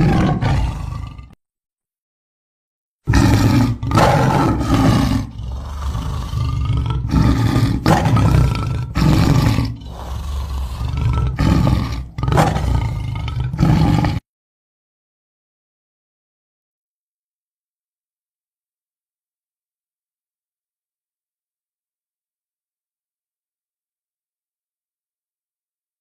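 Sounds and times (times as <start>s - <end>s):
big cat roaring and growling: 0.0s - 1.4s, 3.1s - 14.2s.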